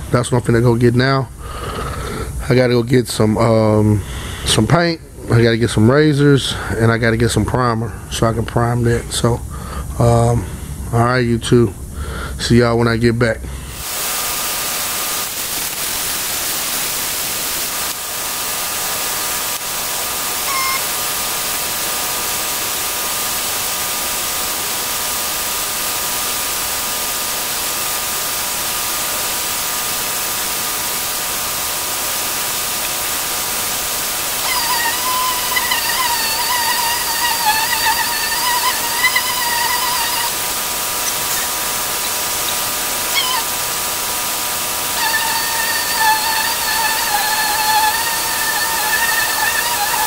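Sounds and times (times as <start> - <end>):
background hiss: 0.0 - 50.0
wavering high-pitched whine: 13.7 - 50.0.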